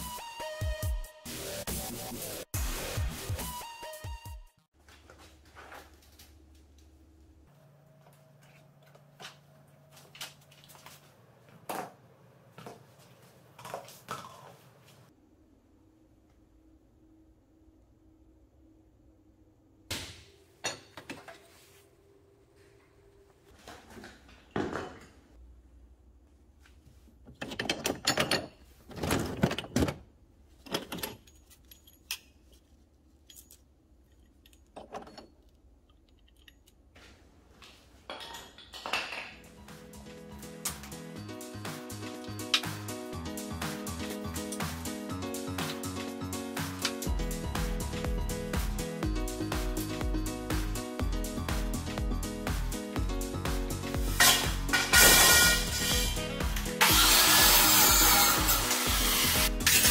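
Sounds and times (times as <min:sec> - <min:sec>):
metal parts clinking and clattering: 0:27.3 - 0:29.9, 0:30.6 - 0:36.9, 0:54.2 - 0:56.2, 0:59.6 - 0:59.9.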